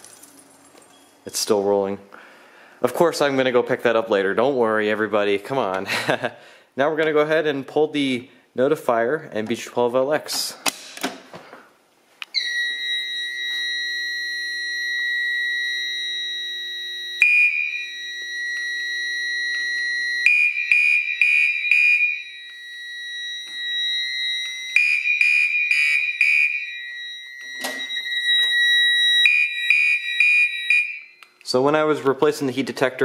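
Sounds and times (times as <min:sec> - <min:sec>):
steady high alarm tone: 0:12.2 - 0:31.3
pulsing fire alarm horn: 0:12.3 - 0:31.2.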